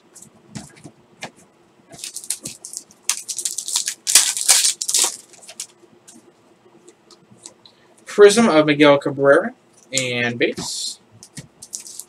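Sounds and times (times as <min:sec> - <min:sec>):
foil wrapper crinkling and tearing: 0:02.0 - 0:05.7, 0:11.6 - 0:12.0.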